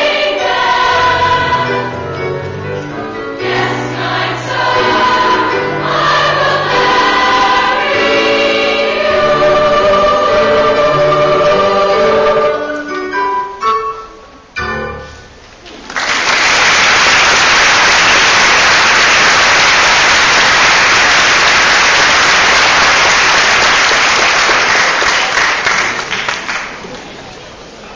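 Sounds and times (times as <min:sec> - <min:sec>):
choir singing with piano: 0:00.0 - 0:14.0
audience applause: 0:15.7 - 0:27.2.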